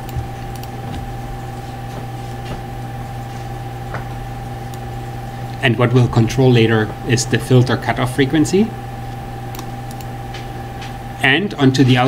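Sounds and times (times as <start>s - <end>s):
computer mouse clicks: 0.0s - 0.8s, 9.1s - 11.0s
low electrical hum: 0.0s - 12.0s.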